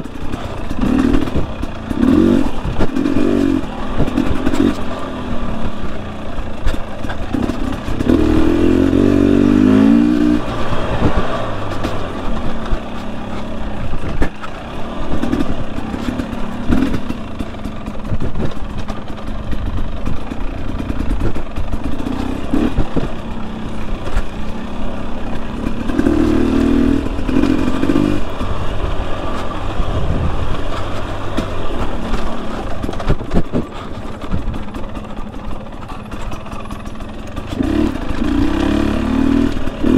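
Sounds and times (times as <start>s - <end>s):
dirt bike engine revving: 0.0s - 39.9s
short knocks and clatter: 30.5s - 38.4s.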